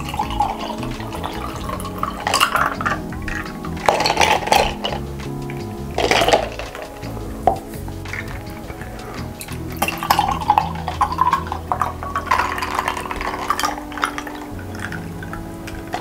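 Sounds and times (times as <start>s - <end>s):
fizzy drink pouring into glass: 0.0s - 5.0s, 9.4s - 16.0s
ice clinking: 0.0s - 16.0s.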